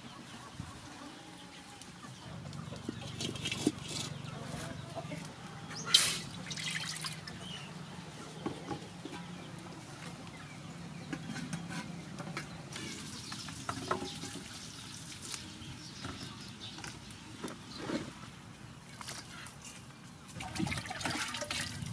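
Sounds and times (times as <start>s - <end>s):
chickens clucking: 0.0s - 6.5s, 7.1s - 20.8s
water poured into a wok: 6.5s - 7.2s.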